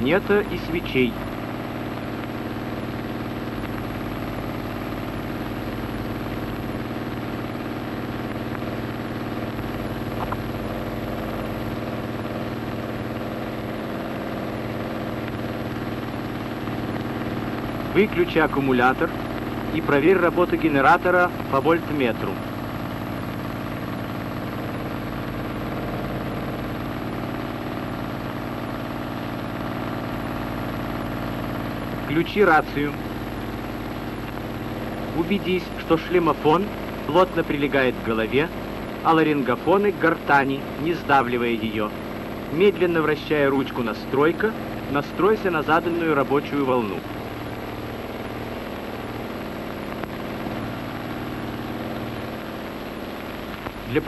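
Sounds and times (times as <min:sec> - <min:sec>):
aircraft engine droning: 0:00.0 - 0:04.2
piston aircraft engine droning: 0:00.0 - 0:54.0.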